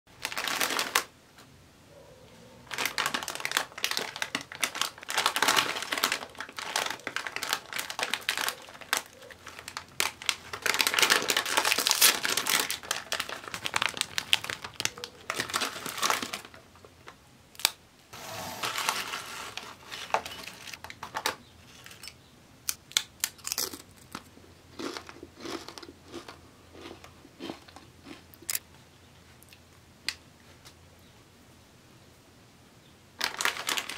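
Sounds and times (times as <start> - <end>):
plastic chip bag crinkling: 0.1 - 1.1, 2.7 - 16.6, 22.9 - 28.6, 33.2 - 33.9.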